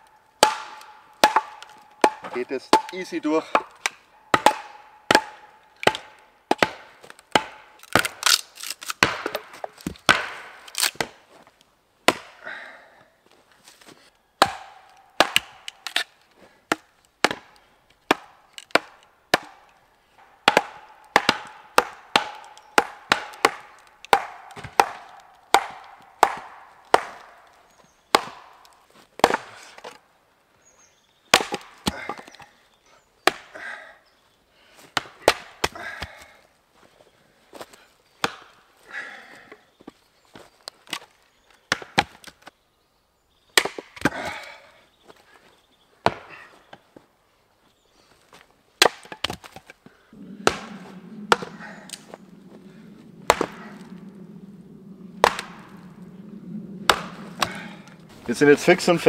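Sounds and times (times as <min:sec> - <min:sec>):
hatchet chopping wood: 0:00.4 - 0:11.2, 0:12.1 - 0:12.4, 0:14.4 - 0:16.1, 0:16.7 - 0:30.0, 0:31.3 - 0:32.5, 0:33.2 - 0:33.7, 0:34.9 - 0:36.4, 0:37.6 - 0:38.6, 0:41.7 - 0:42.4, 0:43.6 - 0:44.5, 0:46.0 - 0:46.4, 0:48.8 - 0:54.2, 0:55.2 - 0:56.1, 0:56.8 - 0:58.0.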